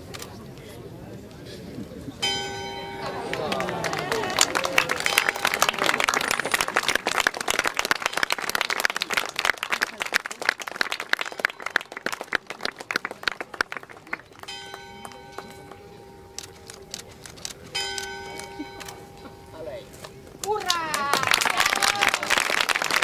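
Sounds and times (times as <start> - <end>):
crowd applauding: 3.0 - 15.9, 20.4 - 23.0.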